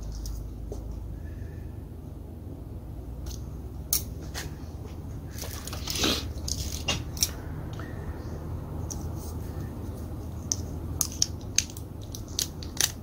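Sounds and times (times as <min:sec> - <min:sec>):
low steady hum: 0:00.0 - 0:13.0
rustling scrape: 0:05.3 - 0:07.2.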